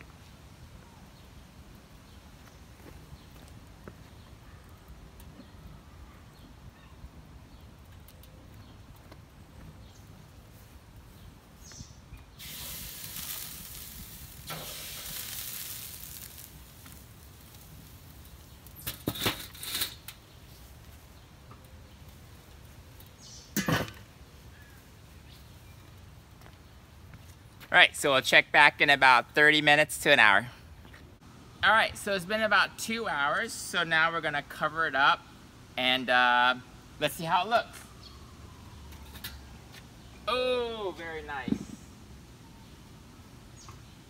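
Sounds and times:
meat hissing on a grill: 12.4 - 19.7
metal grill lids clanking: 18.8 - 20.2, 23.5 - 24.1.

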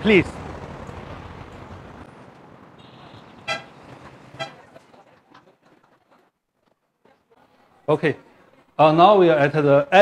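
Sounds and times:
street traffic noise: 0.0 - 10.0
vehicle horn toots: 2.8 - 3.8, 4.4 - 4.6.

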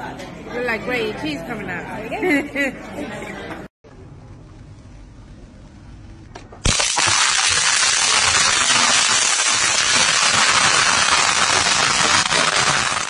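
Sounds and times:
electric fly-swatter crackling: 6.6 - 13.0.

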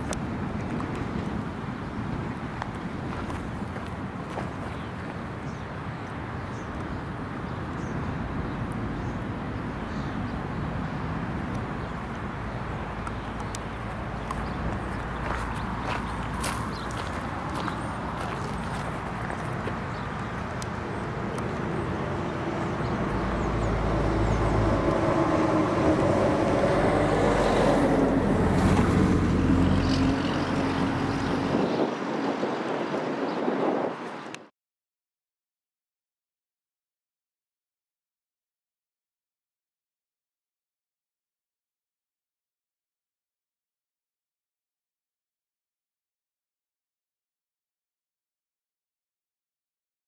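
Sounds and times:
road traffic: 0.0 - 34.5
wind: 0.0 - 34.5
vehicle driving past: 20.8 - 31.7.

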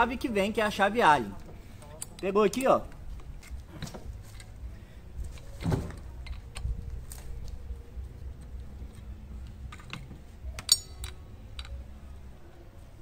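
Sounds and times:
metal tools clinking: 10.6 - 11.8
sharp ringing clink: 10.7 - 11.1.

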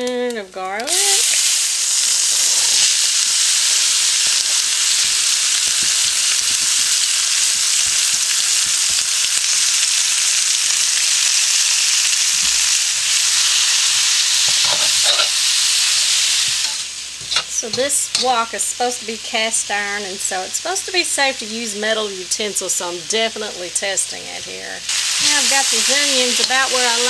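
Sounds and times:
onions sizzling in hot oil: 0.7 - 27.0
metal utensil scraping a wok: 13.3 - 18.4.

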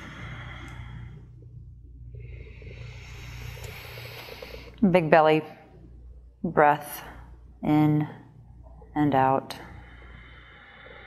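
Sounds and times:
soft hiss: 0.0 - 5.2
low hum: 0.0 - 11.0.

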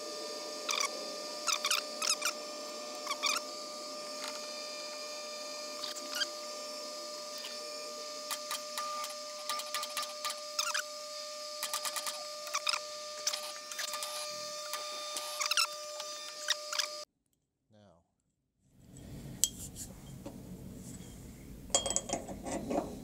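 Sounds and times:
machine hum: 0.0 - 17.0
tap squeaking and clicking in metal: 11.6 - 17.0.

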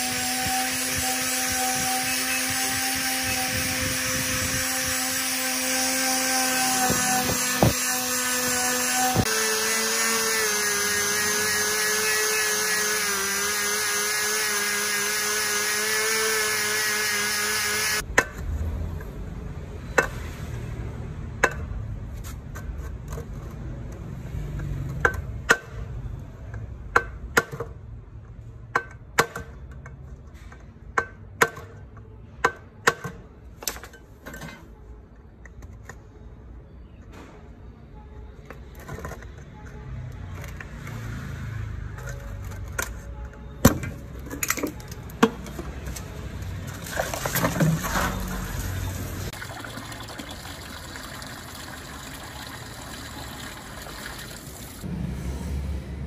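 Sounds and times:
water sloshing in metal basin: 46.6 - 54.8.

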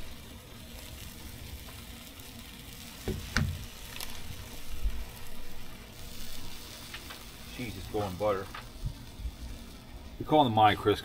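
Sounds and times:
food sizzling on a griddle: 0.0 - 11.0.

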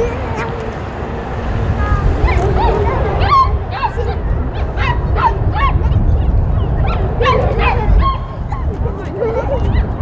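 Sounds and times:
steady low rumble: 0.0 - 10.0
small dog yipping and barking: 2.2 - 6.0, 6.8 - 8.7.

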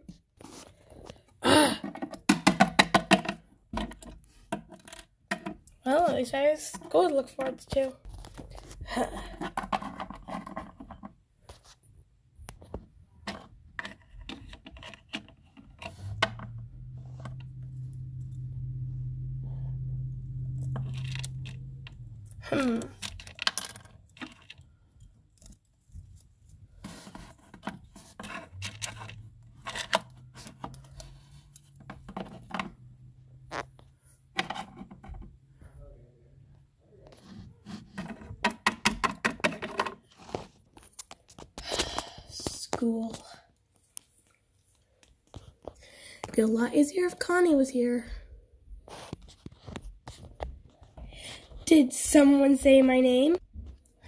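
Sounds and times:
steady low hum: 16.0 - 23.0
plastic toys clicking: 20.8 - 25.7.

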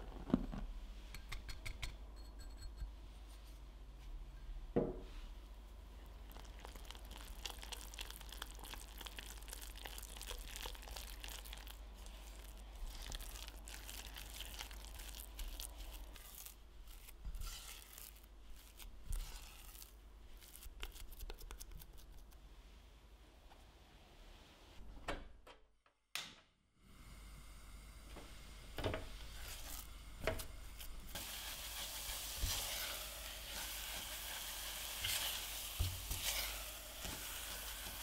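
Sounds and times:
spatula scraping a metal saucepan: 16.2 - 18.3, 19.1 - 19.9, 31.2 - 38.0.

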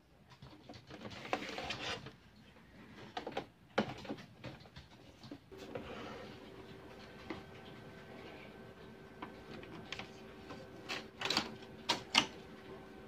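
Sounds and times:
printer mechanical hum: 5.5 - 13.0.

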